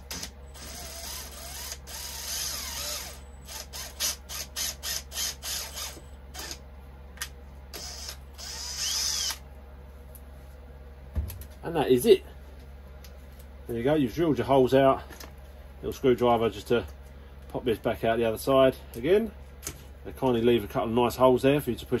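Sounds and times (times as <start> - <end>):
power drill boring: 0.1 - 6.6, 7.8 - 9.4.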